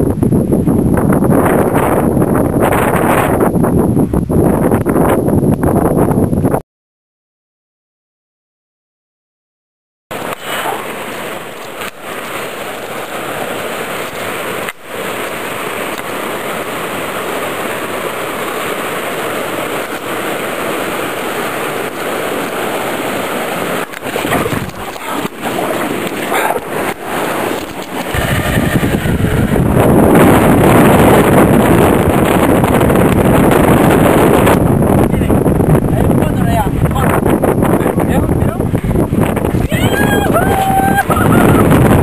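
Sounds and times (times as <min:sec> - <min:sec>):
wind buffeting microphone: 0:00.0 - 0:06.6, 0:10.1 - 0:42.0
stream rushing over rocks: 0:10.1 - 0:34.5.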